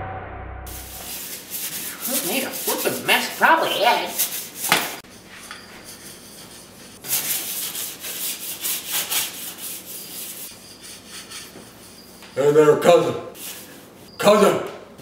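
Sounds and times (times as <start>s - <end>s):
sponge scrubbing glass stove: 0.7s - 12.4s.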